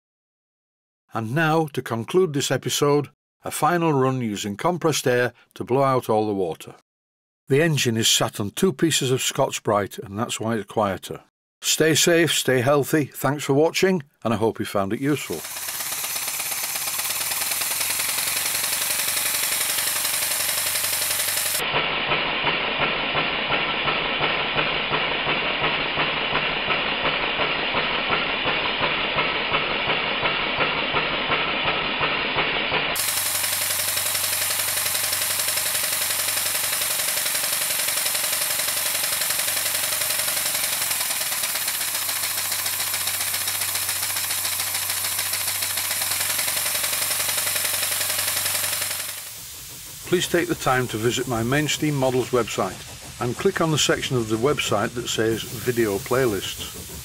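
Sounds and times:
model steam engine exhaust hissing: 0:15.1 - 0:21.6, 0:22.9 - 0:57.0.

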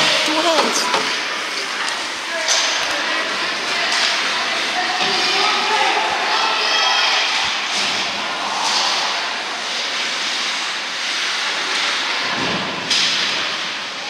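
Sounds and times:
crowd cheering: 0:01.8 - 0:10.3.

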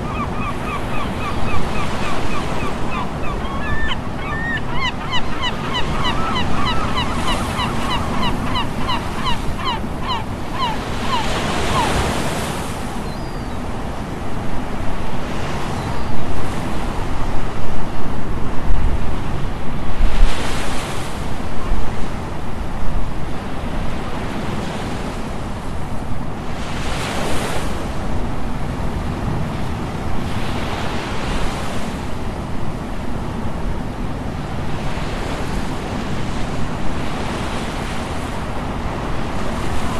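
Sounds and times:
ocean surf breaking: 0:00.0 - 0:13.1
wind on microphone: 0:00.0 - 0:23.3.

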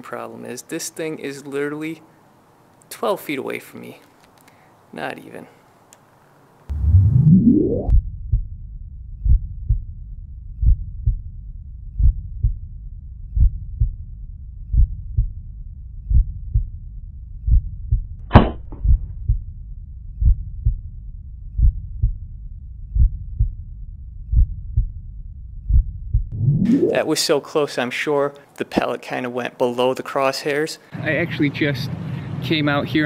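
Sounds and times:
heartbeat thumps: 0:06.7 - 0:09.9, 0:10.5 - 0:11.3, 0:11.9 - 0:12.7, 0:13.3 - 0:15.4, 0:16.0 - 0:16.8, 0:17.4 - 0:19.5, 0:20.2 - 0:20.9, 0:21.5 - 0:22.3, 0:22.9 - 0:23.6, 0:24.2 - 0:27.0
air pistol shot: 0:18.3 - 0:18.8.

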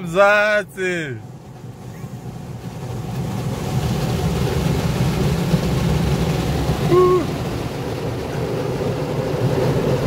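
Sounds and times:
water pouring onto car roof: 0:00.0 - 0:10.0.

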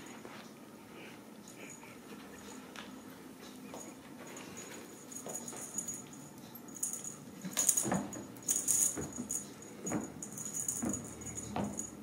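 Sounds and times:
cat toy rattling and jingling: 0:04.3 - 0:12.0.

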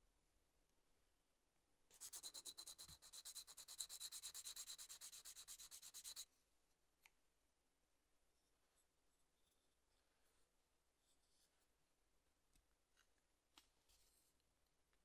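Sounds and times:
sanding stick rubbing plastic: 0:01.9 - 0:06.2.

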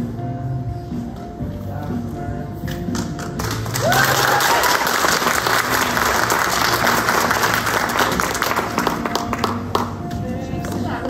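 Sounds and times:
faint background music: 0:00.0 - 0:11.0
audience clapping: 0:03.4 - 0:10.0.

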